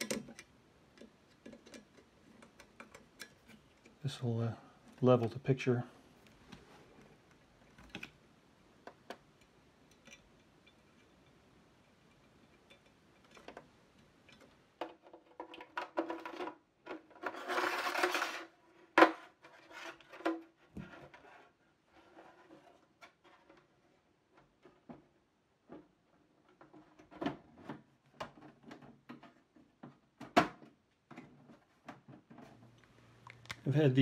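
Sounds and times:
plastic scraping and rubbing: 14.8s - 30.0s.

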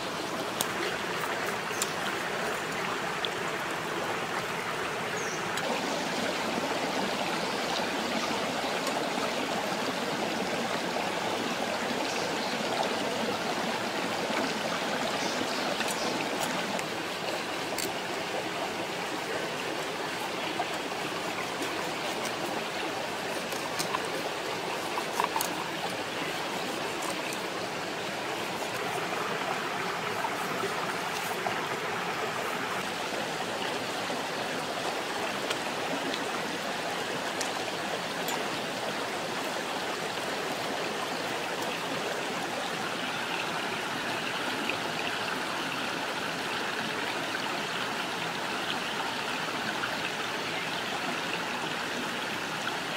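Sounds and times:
stream running over stones: 0.0s - 52.9s.

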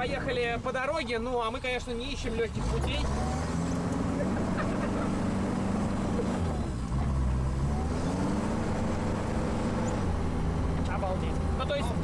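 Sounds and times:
off-road buggy engine under load: 0.0s - 12.0s.

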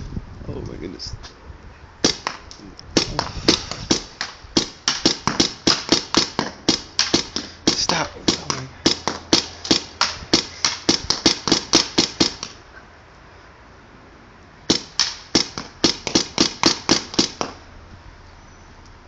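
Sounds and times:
air gun firing rapid shots: 2.0s - 2.4s, 3.0s - 12.6s, 14.7s - 17.6s.

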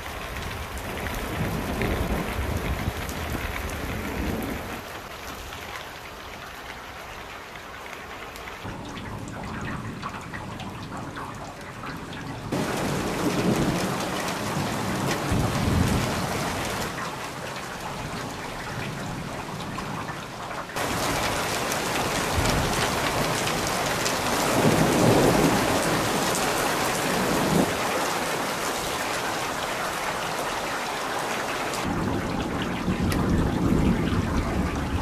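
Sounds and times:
heavy rain falling: 0.0s - 35.0s
thunder rumbling: 0.1s - 4.9s, 8.7s - 17.0s, 20.8s - 28.0s, 31.8s - 35.0s.

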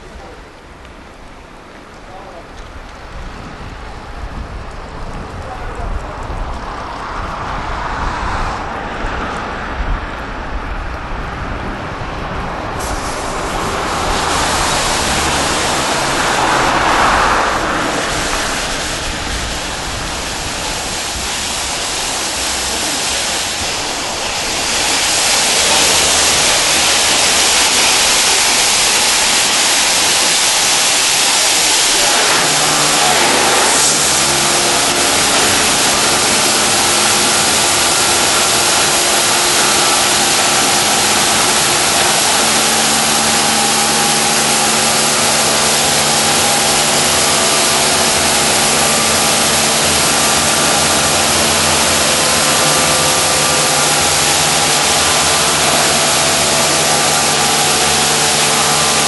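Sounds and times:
low machinery hum: 11.6s - 59.0s
water spray rushing: 12.0s - 59.0s.

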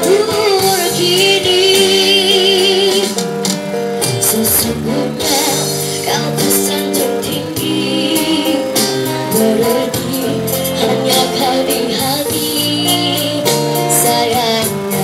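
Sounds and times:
girl singing into microphone: 0.0s - 3.2s, 4.0s - 15.0s
live band playing: 0.0s - 15.0s
percussion hits: 2.7s - 12.5s.

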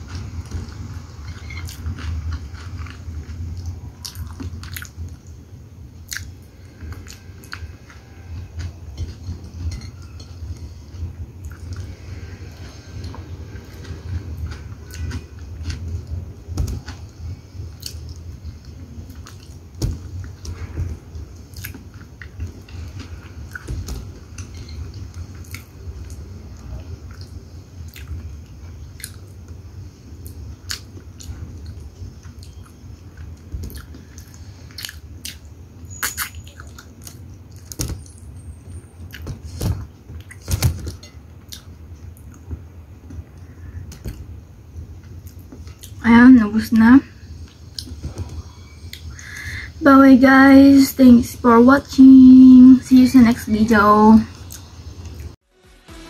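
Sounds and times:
person chewing: 0.0s - 5.3s, 6.0s - 9.2s, 11.4s - 16.2s, 17.7s - 19.6s, 21.4s - 23.7s, 24.9s - 29.4s, 30.2s - 37.8s, 41.4s - 42.5s, 45.1s - 46.0s, 54.4s - 55.3s.

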